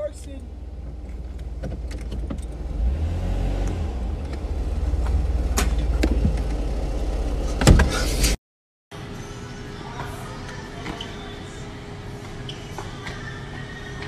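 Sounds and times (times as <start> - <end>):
car engine rumble from inside: 0.0 - 8.4.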